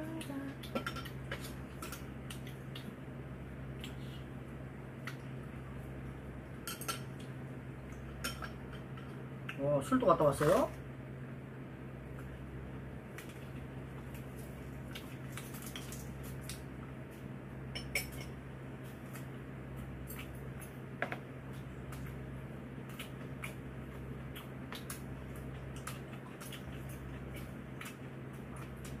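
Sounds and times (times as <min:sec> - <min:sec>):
steady low hum: 0:00.0 - 0:29.0
utensils clinking against dishes: 0:17.8 - 0:18.4.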